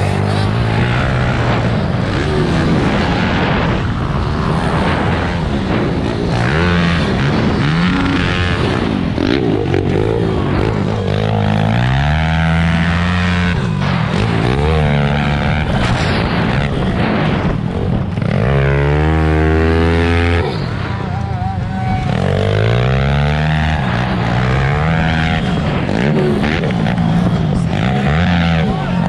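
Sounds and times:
motorbike engine revving: 0:00.0 - 0:29.0
wind rushing on microphone: 0:00.5 - 0:11.0, 0:15.3 - 0:22.1.

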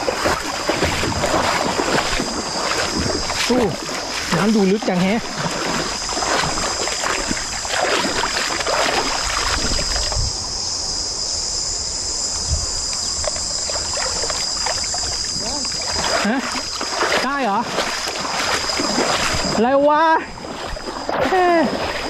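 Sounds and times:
water splashing around wading legs: 0:00.0 - 0:10.3, 0:12.9 - 0:22.0
insects buzzing: 0:00.0 - 0:22.0.

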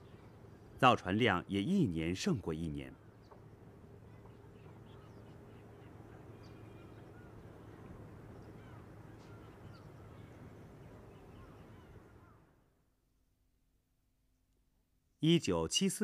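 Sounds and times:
small birds chirping: 0:00.0 - 0:12.6.

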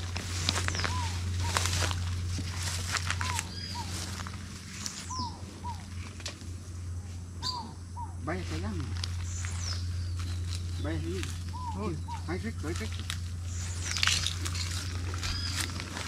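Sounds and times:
birds calling: 0:00.0 - 0:16.0
dry vegetation crackling: 0:00.0 - 0:16.0
steady low drone: 0:00.0 - 0:16.0.

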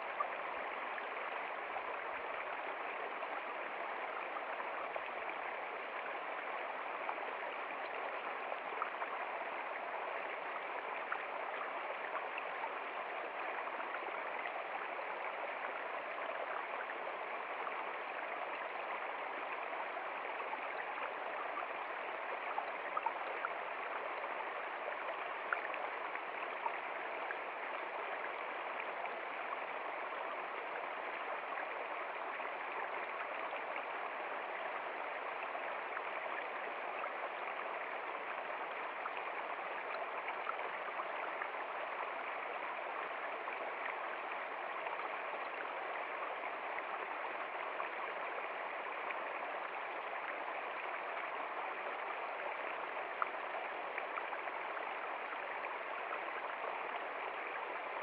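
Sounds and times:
stream rushing over stones: 0:00.0 - 0:58.0.

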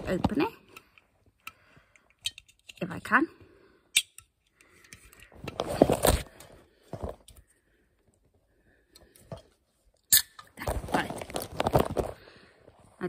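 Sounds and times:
handling rustle: 0:05.3 - 0:07.4, 0:10.6 - 0:12.4.

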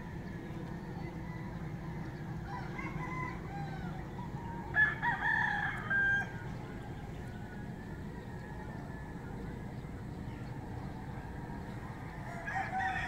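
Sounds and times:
rooster crowing: 0:01.0 - 0:09.4, 0:11.8 - 0:13.0.

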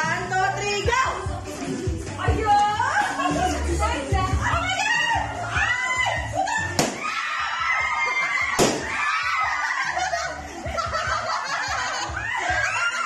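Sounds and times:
people shrieking and laughing: 0:02.6 - 0:13.0
balloons bursting: 0:06.8 - 0:07.2, 0:08.5 - 0:09.1.

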